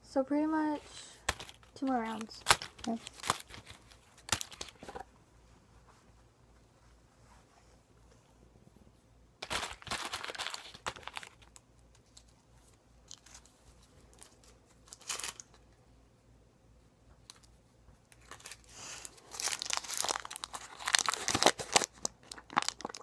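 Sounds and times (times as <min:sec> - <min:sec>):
wrapper crinkling and tearing: 0:01.2 - 0:04.9, 0:09.4 - 0:12.3, 0:14.1 - 0:15.6, 0:18.1 - 0:23.0.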